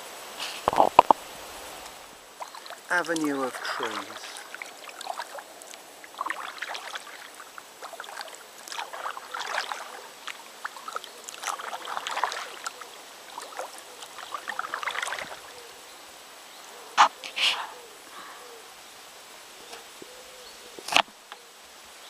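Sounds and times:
kayak paddle strokes: 0:00.0 - 0:15.5
water splashes and drips: 0:00.7 - 0:16.2.

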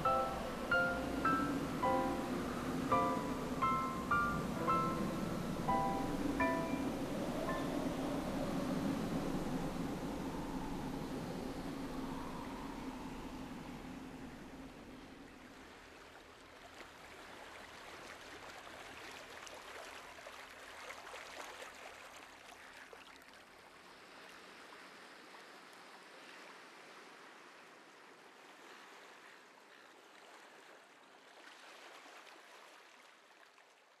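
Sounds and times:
faint rushing crackling noise: 0:00.0 - 0:15.3.

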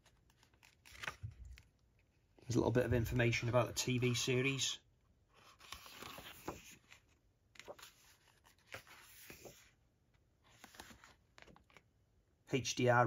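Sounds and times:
glossy paper pages turning: 0:00.0 - 0:02.1, 0:05.4 - 0:09.8, 0:10.4 - 0:11.9.

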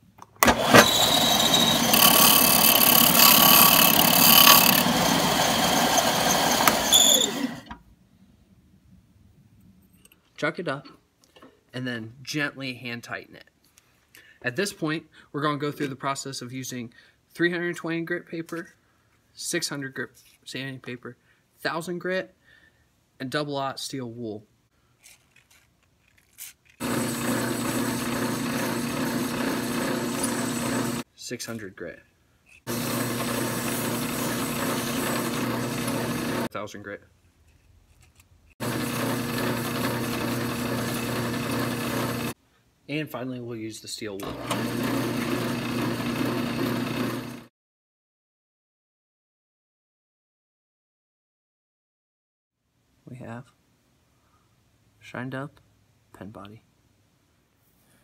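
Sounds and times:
bench sander running: 0:00.4 - 0:07.8, 0:26.8 - 0:31.0, 0:32.7 - 0:36.5, 0:38.6 - 0:42.4, 0:44.3 - 0:47.5
drill press motor hum: 0:00.4 - 0:07.8, 0:26.8 - 0:31.0, 0:32.7 - 0:36.5, 0:38.6 - 0:42.4, 0:44.2 - 0:47.5
metal sanding: 0:00.7 - 0:07.4.

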